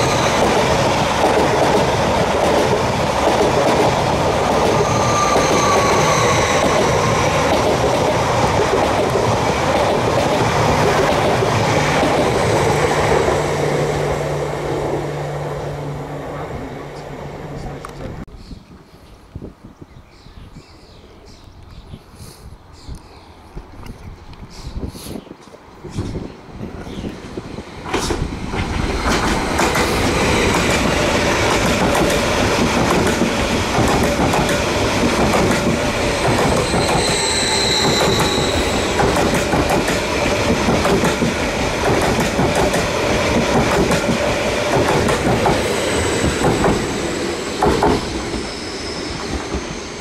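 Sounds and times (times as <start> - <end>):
high squeal: 0.0 - 0.6, 4.6 - 7.3, 36.0 - 39.2, 45.6 - 50.0
train wheels clacking over rails: 0.0 - 13.7, 27.8 - 50.0.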